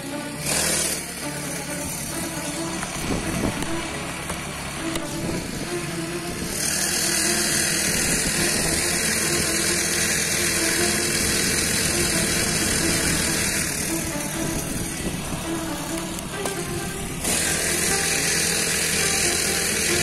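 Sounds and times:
small petrol engine running: 0.0 - 20.0
rushing wind and road noise: 1.9 - 9.6, 10.8 - 18.2.

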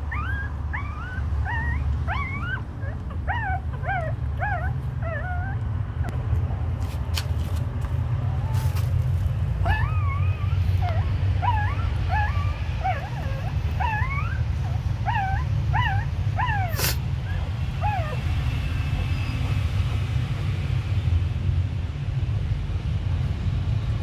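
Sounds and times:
puppies whimpering and squeaking: 0.0 - 6.2, 8.2 - 18.3.

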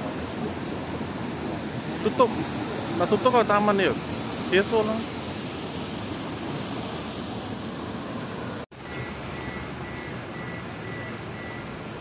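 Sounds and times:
city street traffic roar: 0.0 - 12.0
faint high beeps: 8.8 - 11.8.

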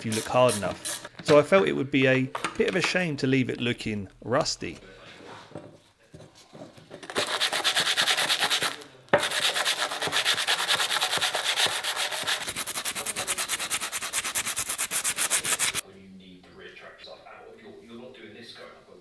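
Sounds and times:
sanding sponge scraping steel: 0.0 - 1.1, 7.1 - 15.8.

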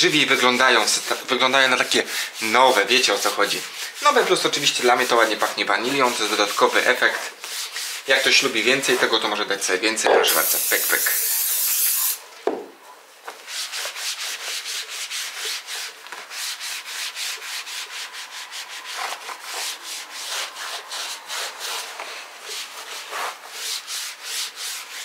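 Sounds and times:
aerosol spray hissing: 10.2 - 12.2
cloth rubbing floor mat: 13.3 - 25.0.

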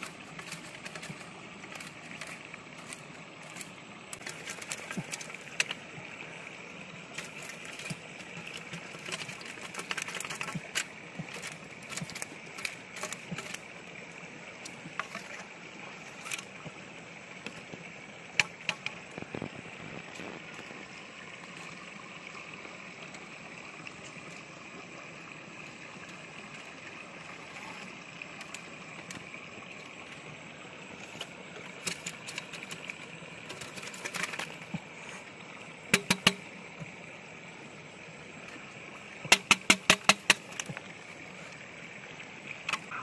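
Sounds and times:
clicks and taps of plastic and wire: 7.2 - 13.6, 35.9 - 36.9, 39.2 - 40.9.

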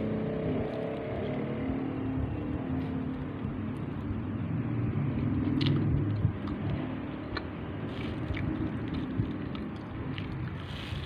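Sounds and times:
steady low rumble: 0.0 - 11.0
eating sounds: 5.1 - 11.0
fork scraping a paper cup: 10.6 - 11.0.

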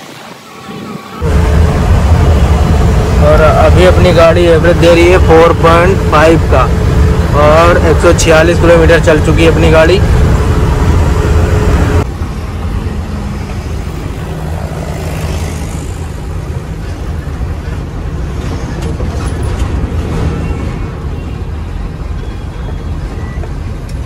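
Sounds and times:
truck diesel engine rumble: 1.2 - 24.0.

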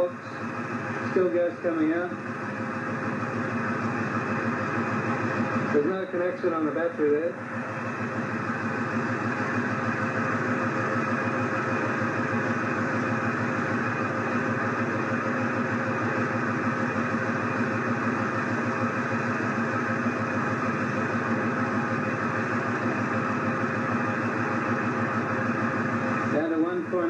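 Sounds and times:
car engine idling: 0.0 - 27.0.

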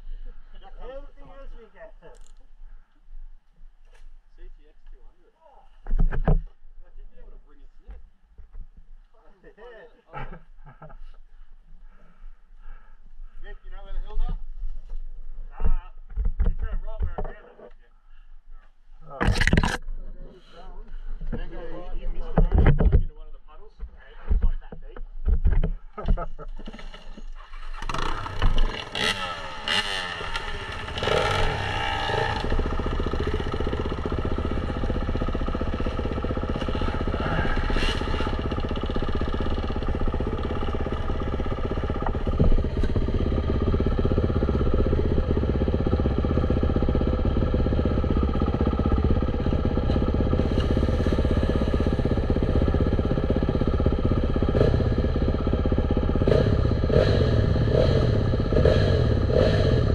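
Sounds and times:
dirt bike engine running: 27.4 - 59.9.

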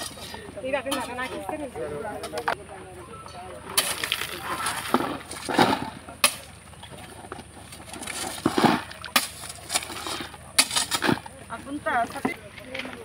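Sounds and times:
spade digging into gravel: 3.8 - 6.5, 7.9 - 11.3.

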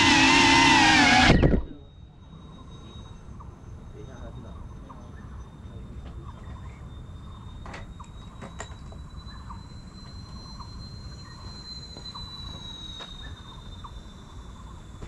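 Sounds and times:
faint chirps: 1.5 - 15.0.

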